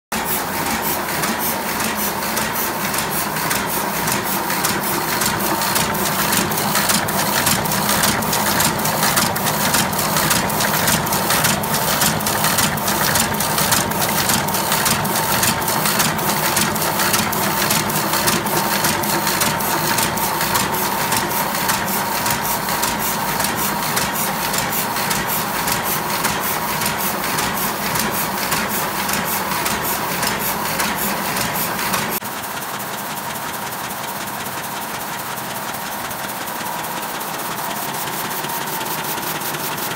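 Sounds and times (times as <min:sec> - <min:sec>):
printing press clattering: 0:00.2 - 0:39.9.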